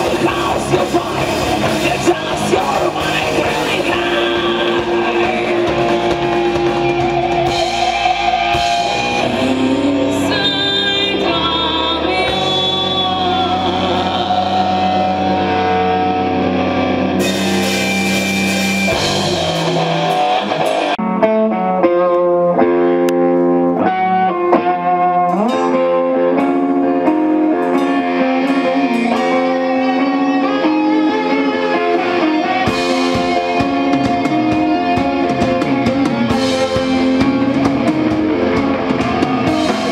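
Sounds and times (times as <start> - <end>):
bass guitar: 0.0 - 39.9
distorted electric guitar: 0.0 - 39.9
drums: 0.0 - 39.9
woman singing: 7.8 - 15.6.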